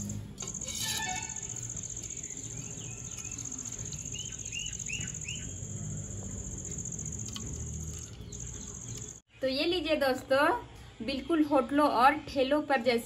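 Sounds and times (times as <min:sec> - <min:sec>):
crickets trilling: 0:00.0 - 0:09.2
bird chirping: 0:00.0 - 0:09.6.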